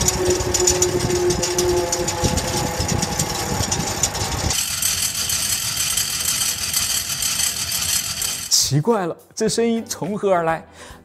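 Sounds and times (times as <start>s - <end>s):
turbofan blades clattering: 0.0s - 8.7s.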